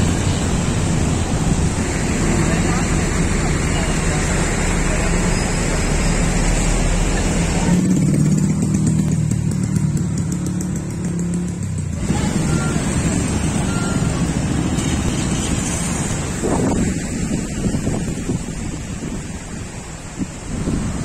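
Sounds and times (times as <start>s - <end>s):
motorbike engine humming: 0.0s - 21.0s
street noise: 0.0s - 21.0s
wind on microphone: 12.0s - 21.0s.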